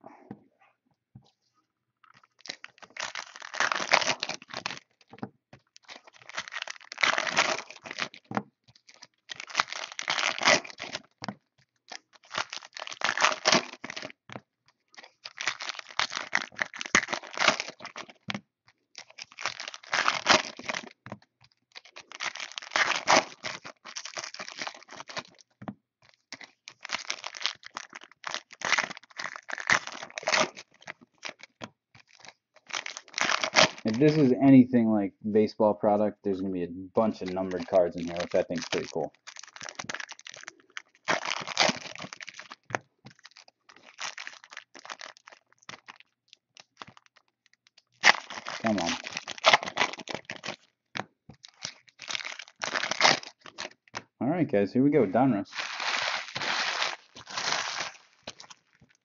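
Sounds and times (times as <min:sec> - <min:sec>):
wrappers tearing and crinkling: 0:02.1 - 0:05.1, 0:05.8 - 0:11.2, 0:11.8 - 0:14.2, 0:14.9 - 0:18.3, 0:19.0 - 0:21.0, 0:21.6 - 0:34.3, 0:37.0 - 0:50.8, 0:51.4 - 0:54.0, 0:55.4 - 0:59.0.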